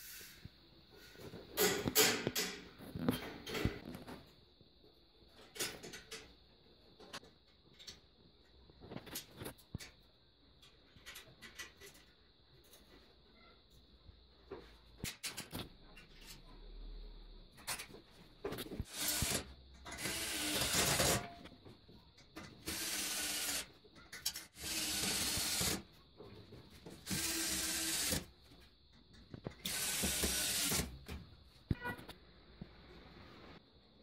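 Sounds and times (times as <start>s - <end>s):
electric drill on steel: 18.9s - 21.4s, 22.5s - 25.8s, 27.0s - 28.3s, 29.6s - 31.0s.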